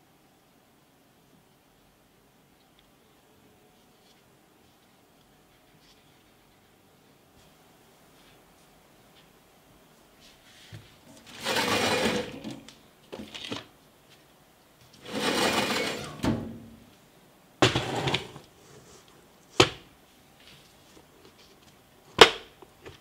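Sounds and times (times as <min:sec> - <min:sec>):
metal drawer sliding on runners: 0:11.3 - 0:12.6, 0:15.0 - 0:16.8, 0:17.6 - 0:18.4.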